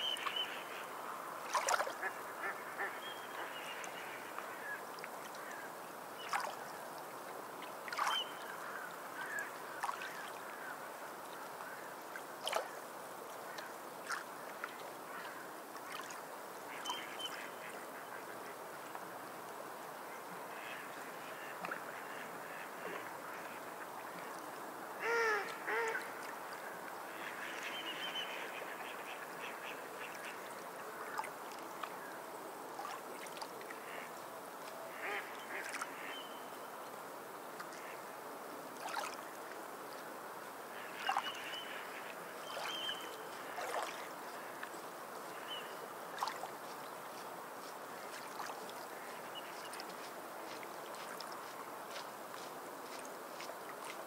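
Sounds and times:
waterfowl calling: 0:01.5 - 0:03.9, 0:25.0 - 0:26.3, 0:34.9 - 0:36.4.

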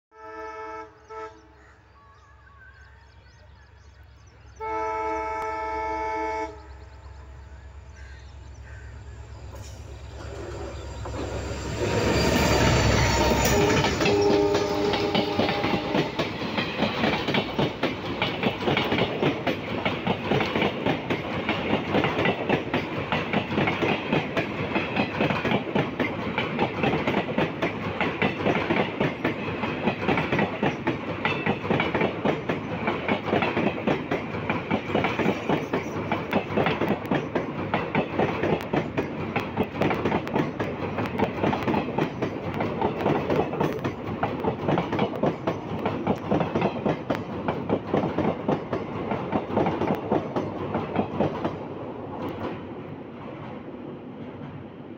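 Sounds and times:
diesel locomotive engine: 0:00.2 - 0:54.9
train wheels clickety-clack: 0:09.5 - 0:54.9.

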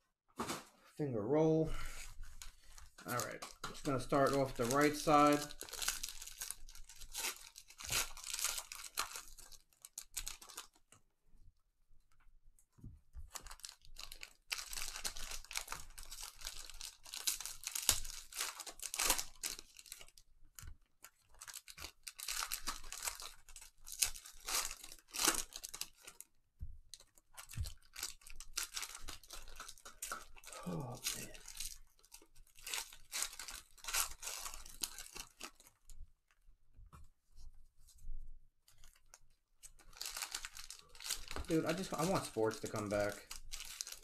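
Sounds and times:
foil wrappers tearing and crinkling: 0:01.8 - 0:10.8, 0:13.3 - 0:20.2, 0:21.0 - 0:26.3, 0:27.4 - 0:35.8, 0:38.7 - 0:44.0.

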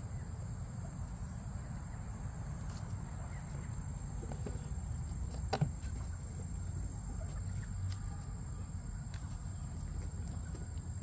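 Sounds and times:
goats tearing and chewing leaves: 0:02.6 - 0:11.0.

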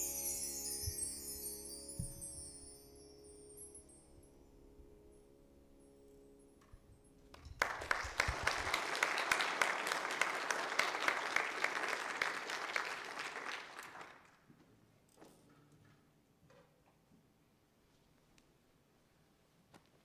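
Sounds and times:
held musical chord: 0:00.0 - 0:07.3
congregation applauding: 0:07.3 - 0:14.5.

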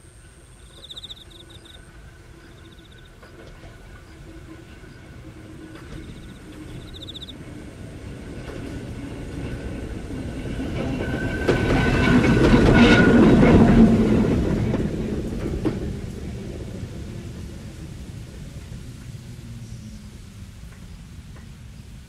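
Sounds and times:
crickets chirping faintly: 0:00.0 - 0:07.5
electric train passing: 0:00.0 - 0:22.0.

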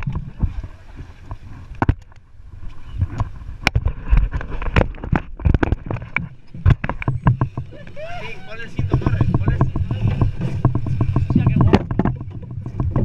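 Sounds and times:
low rumble of wind: 0:00.0 - 0:13.0
water: 0:00.0 - 0:13.0
knocks against a fibreglass boat: 0:08.8 - 0:13.0.

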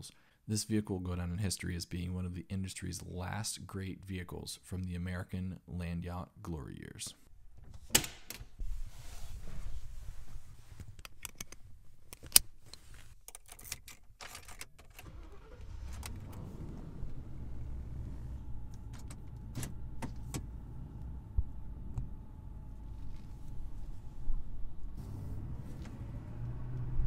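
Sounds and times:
keys jingling: 0:13.3 - 0:15.0
car engine starting and idling: 0:13.6 - 0:27.0.

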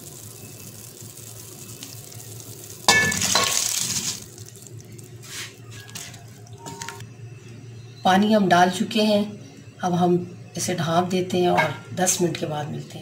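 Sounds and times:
rice splashing into pot: 0:00.0 - 0:05.6
dal simmering hiss: 0:00.0 - 0:07.0.

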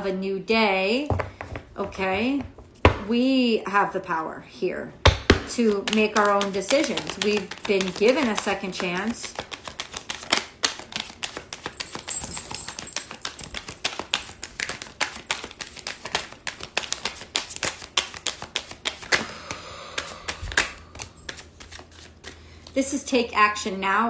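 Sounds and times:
cards being shuffled: 0:05.6 - 0:22.8.

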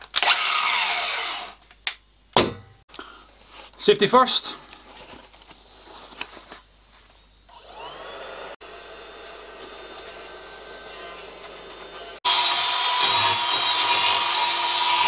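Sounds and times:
soft handling noises: 0:03.3 - 0:07.2
electric motor whining: 0:07.5 - 0:13.6.

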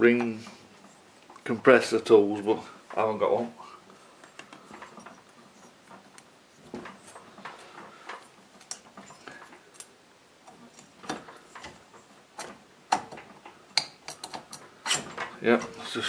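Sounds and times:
faint metal clicks and taps: 0:05.9 - 0:15.8.

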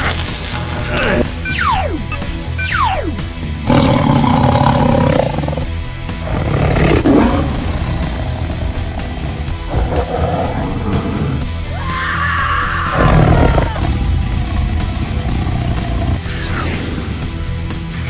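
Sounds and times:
background music: 0:00.0 - 0:18.0
monster roar: 0:03.6 - 0:17.4.

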